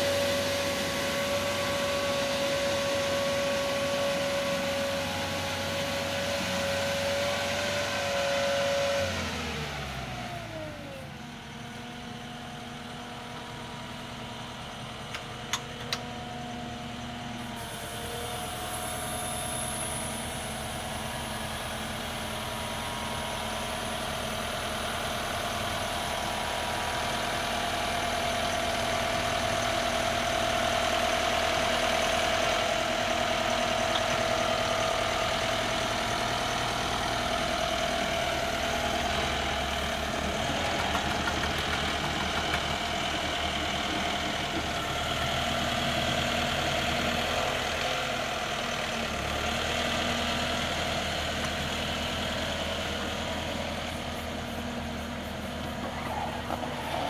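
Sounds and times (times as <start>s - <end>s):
pile driver engine running: 0.0s - 57.0s.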